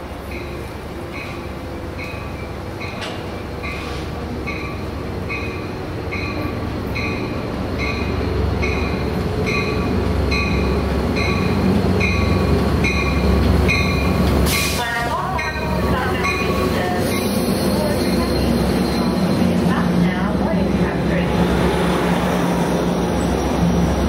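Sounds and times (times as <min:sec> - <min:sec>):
diesel locomotive engine rumble: 0:00.0 - 0:24.0
train bell ringing: 0:00.2 - 0:14.2, 0:15.0 - 0:20.2.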